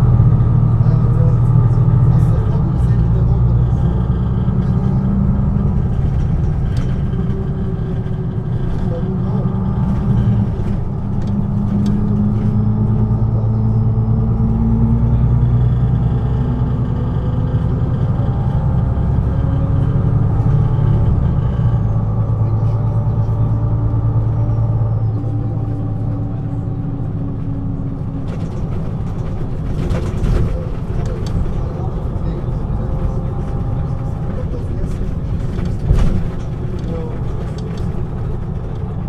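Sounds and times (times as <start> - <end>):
bus diesel engine droning: 0.0 - 39.0.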